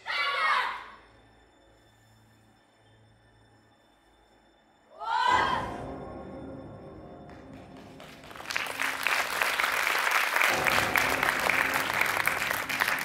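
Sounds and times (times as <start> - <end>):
recorded music: 5.6 - 13.0
audience clapping: 7.2 - 13.0.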